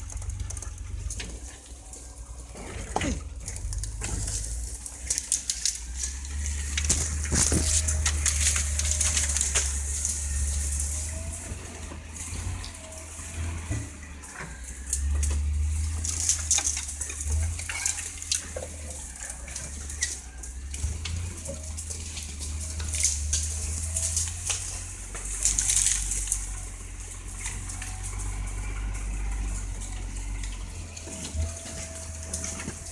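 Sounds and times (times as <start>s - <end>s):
branches scraping against vehicle: 0.0s - 32.9s
vehicle engine low rumble: 0.0s - 32.9s.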